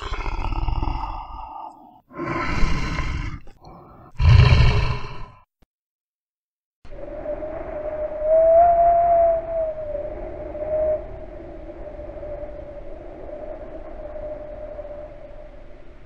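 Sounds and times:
animal roars: 0.0s - 5.4s
long rising held tone: 6.9s - 15.8s.

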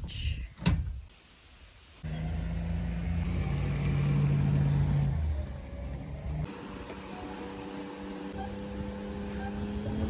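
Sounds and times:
engine humming: 2.0s - 10.0s.

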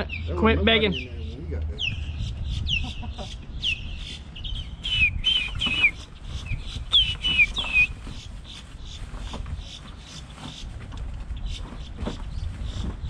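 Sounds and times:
osprey whistled chirps: 3.6s - 8.0s.

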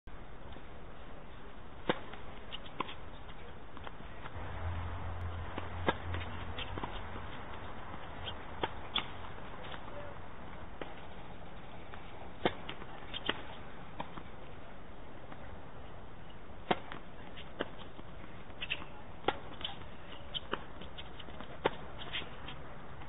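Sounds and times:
tennis balls struck by racquets: 1.8s - 4.4s, 5.2s - 10.1s, 10.7s - 14.4s, 16.6s - 22.6s.

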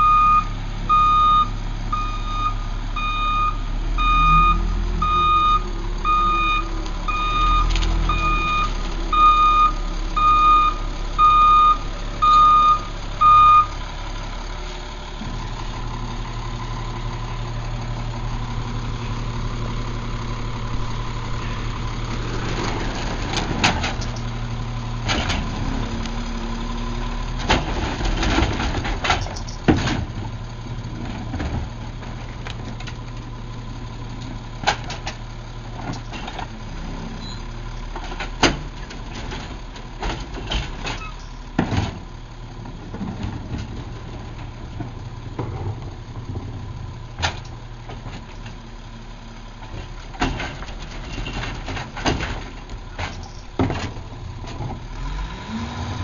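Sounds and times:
garbage truck idling: 0.0s - 56.0s
carts banging and clattering: 21.2s - 24.4s, 27.3s - 33.1s, 37.9s - 48.6s, 49.6s - 55.1s.

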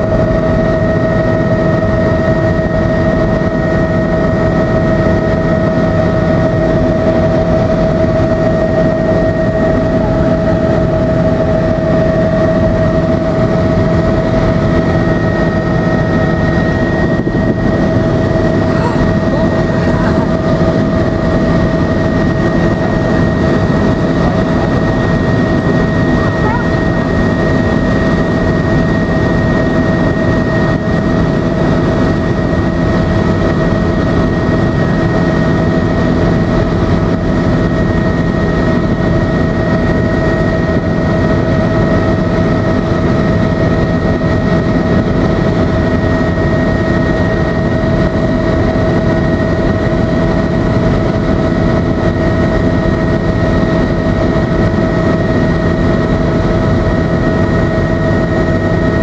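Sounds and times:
helicopter rotor and engine drone: 0.0s - 59.0s
high whine: 7.0s - 30.8s.

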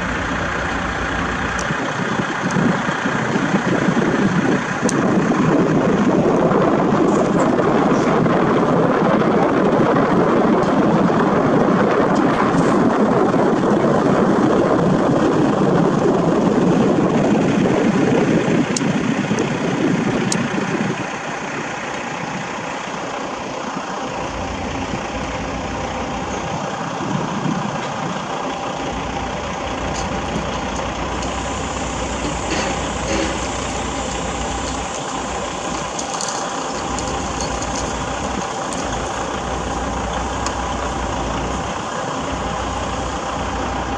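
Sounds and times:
diesel engine running: 0.0s - 43.9s
low hum: 0.0s - 43.9s.

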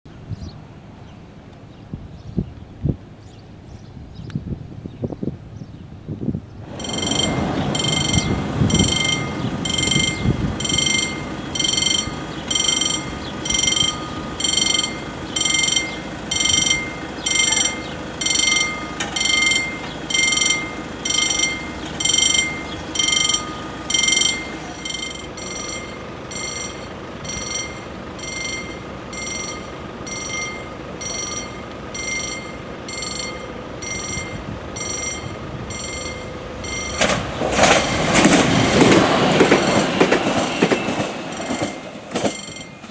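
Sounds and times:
level crossing bell ringing: 6.7s - 37.2s, 41.3s - 42.9s.

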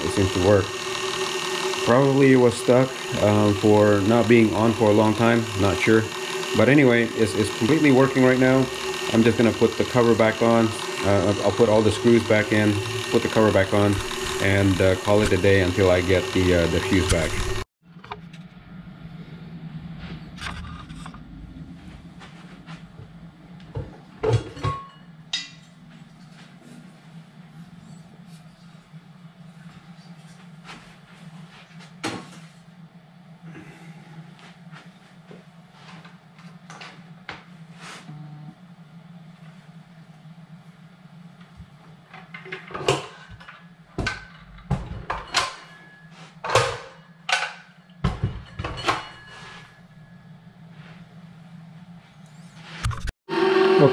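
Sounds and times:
mixer parts knocking and clattering: 0.0s - 18.2s, 23.7s - 25.6s, 42.1s - 45.8s, 46.4s - 49.3s
steady low hum: 0.0s - 53.1s.

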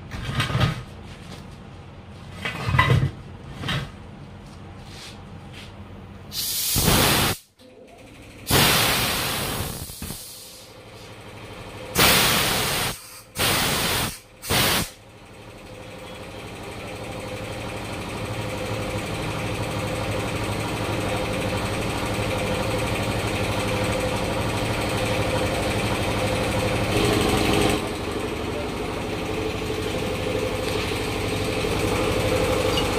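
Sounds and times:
compressed air hissing blasts: 6.3s - 7.5s, 8.5s - 10.8s, 12.0s - 15.0s
motor running: 11.3s - 32.9s.

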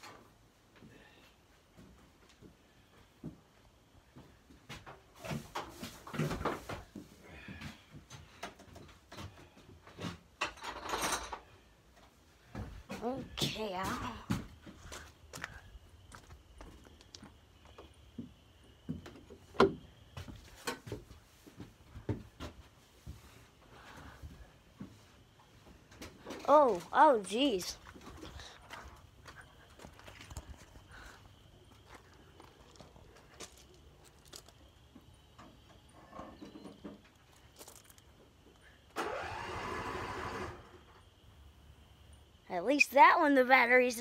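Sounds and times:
footsteps on gravel: 13.5s - 17.8s, 26.7s - 34.7s, 37.4s - 38.1s.

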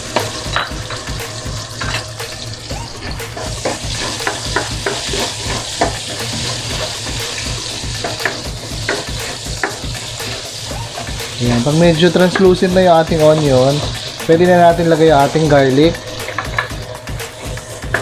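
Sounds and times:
onion sizzling in oil: 0.0s - 18.0s
spatula scraping pan: 2.9s - 12.6s.

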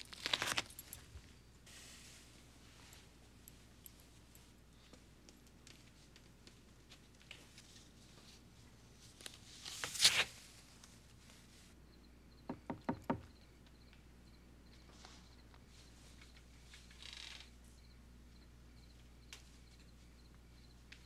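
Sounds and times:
knocks on wooden door: 12.5s - 13.3s.

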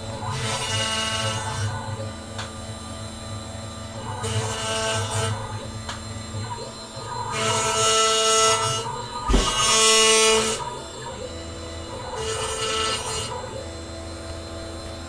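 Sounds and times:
router spindle running: 0.0s - 15.0s
sharp thump: 9.3s - 9.6s.

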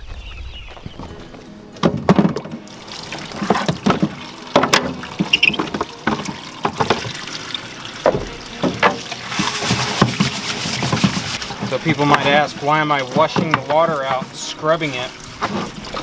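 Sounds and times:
water sloshing: 1.0s - 16.0s
plastic jug knocking in sink: 1.8s - 2.7s, 3.3s - 7.2s, 8.0s - 12.4s
tap water running into jug: 1.9s - 16.0s.

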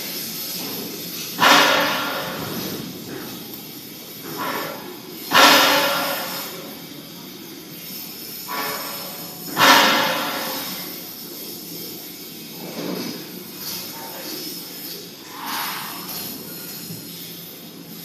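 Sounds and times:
welding machine hissing: 0.0s - 18.0s.

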